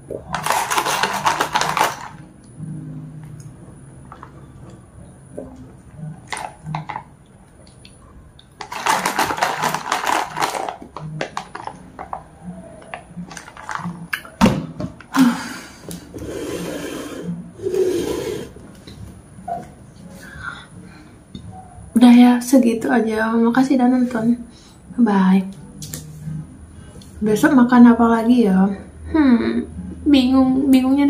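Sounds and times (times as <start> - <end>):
slurping through a straw: 16.2 - 18.6.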